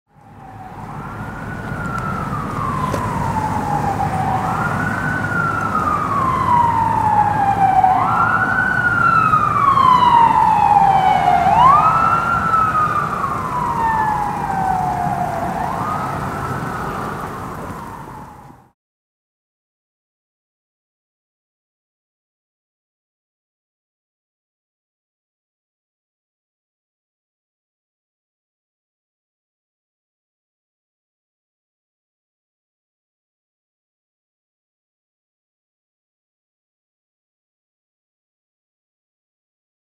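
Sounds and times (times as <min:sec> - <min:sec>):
emergency vehicle siren wailing: 0:00.1 - 0:18.8.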